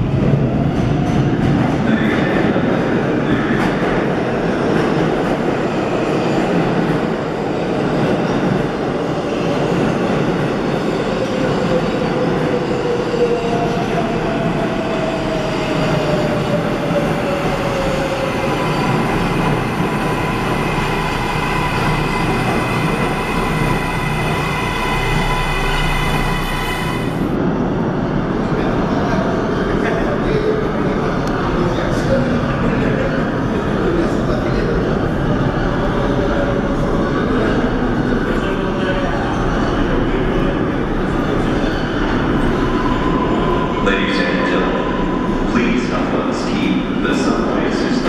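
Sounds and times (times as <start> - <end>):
subway train pulling away: 0.0 - 48.0.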